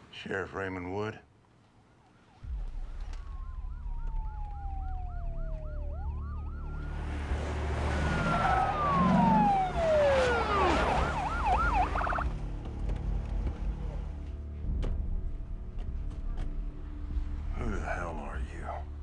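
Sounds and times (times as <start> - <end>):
police siren wailing: 2.3 - 12.3
police siren yelping: 2.3 - 12.3
low rumble: 2.4 - 8.1.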